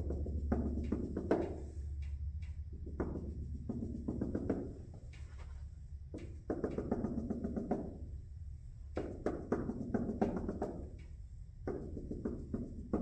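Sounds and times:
marker scratching on a whiteboard: 2.9 - 8.0.

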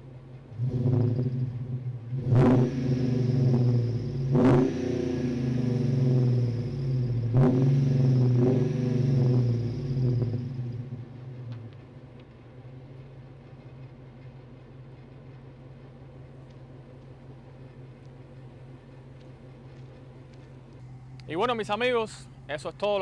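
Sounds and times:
loud engine exhaust revving: 0.6 - 11.4.

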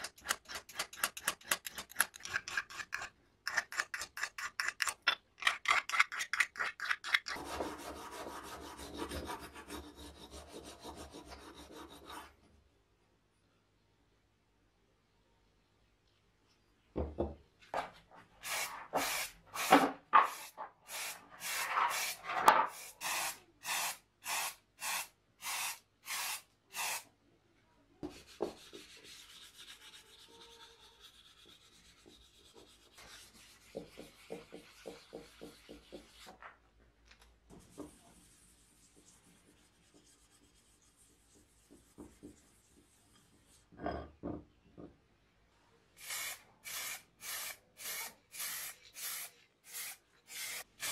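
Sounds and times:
sandpaper rubbing strokes: 28.2 - 36.3
sandpaper rubbing painted edge: 28.2 - 36.4.

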